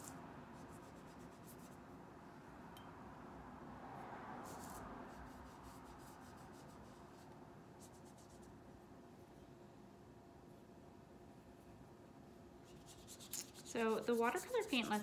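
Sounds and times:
paintbrush strokes on paper: 0.0 - 1.9, 4.4 - 8.6, 12.6 - 15.0
low room hum: 4.4 - 15.0.

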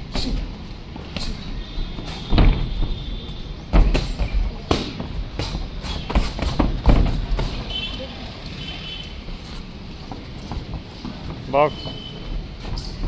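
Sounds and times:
boxing gloves punching: 3.7 - 7.7.

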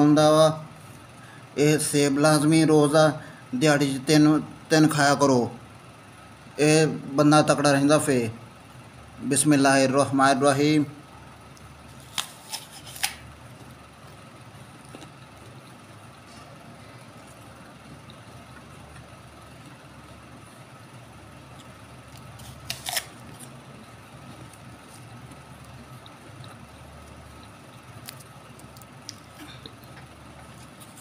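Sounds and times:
teeth crunching into apple: 11.5 - 16.3, 17.1 - 31.0.

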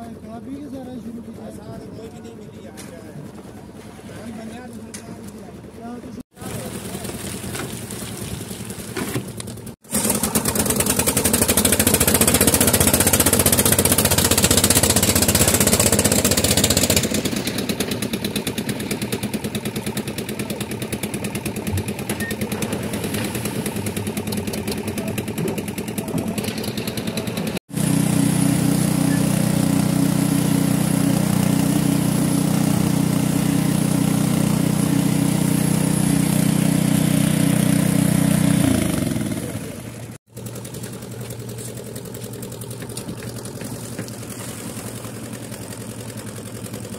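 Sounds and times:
wet concrete tumbling into wheelbarrow: 6.3 - 13.5, 40.6 - 45.7
concrete mixer running: 6.3 - 46.9
concrete vibrator engine running: 6.3 - 46.9.

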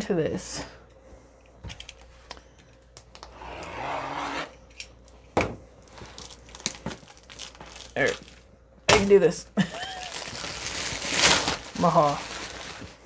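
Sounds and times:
knife slicing plastic wrap: 10.2 - 13.0.

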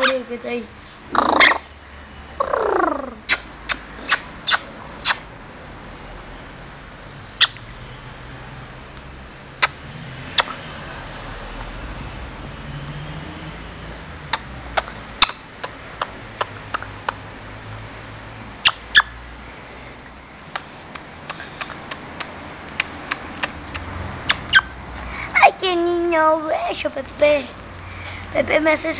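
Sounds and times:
parrot beak clicking: 10.4 - 10.6, 14.3 - 17.2, 20.5 - 24.6.

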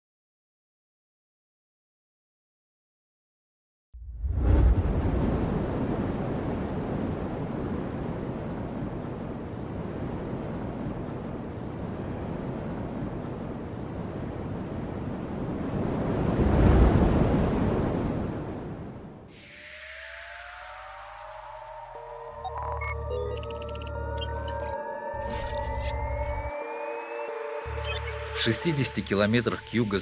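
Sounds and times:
wind-like rumbling rush: 4.0 - 19.3.

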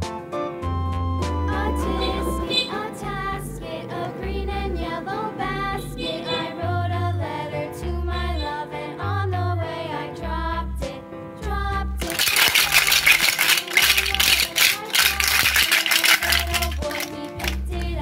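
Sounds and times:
song with singing voice: 1.4 - 8.9, 12.0 - 18.0.

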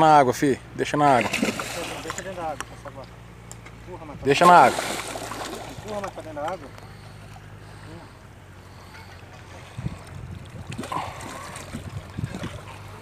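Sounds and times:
fish thrashing water splashing: 1.1 - 2.4, 4.4 - 6.2, 9.5 - 13.0.

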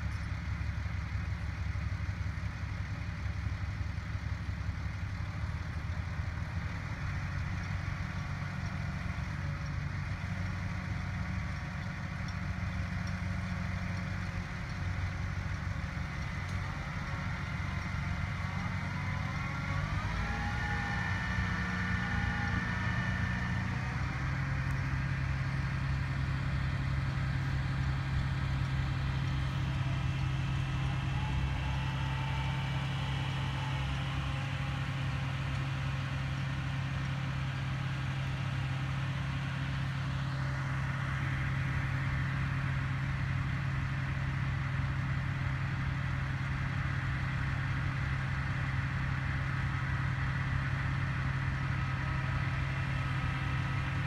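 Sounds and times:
crane engine droning: 0.0 - 54.0
high whine: 16.2 - 39.8.

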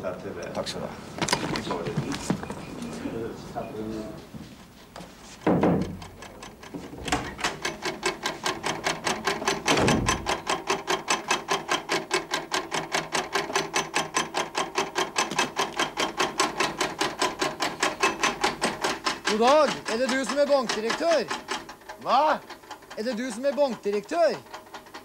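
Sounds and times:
machine thump: 5.4 - 6.1, 9.4 - 10.5
electric machine clattering: 5.4 - 25.0.

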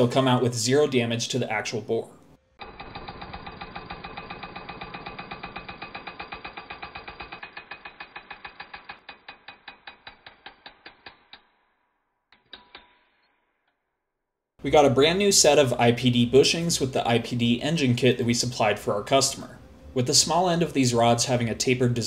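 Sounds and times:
pneumatic air hammer rattling: 2.6 - 11.5.

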